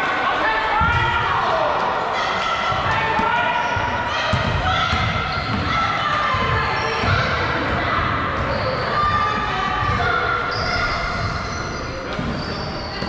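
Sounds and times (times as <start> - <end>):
players' voices: 0.0 - 13.0
basketball bouncing on court: 2.7 - 11.4
sneakers squeaking on floor: 2.9 - 13.0.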